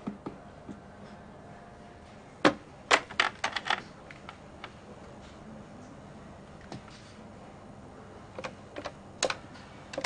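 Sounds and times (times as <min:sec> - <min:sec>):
handset clicks and clatters: 0:02.9 - 0:04.4.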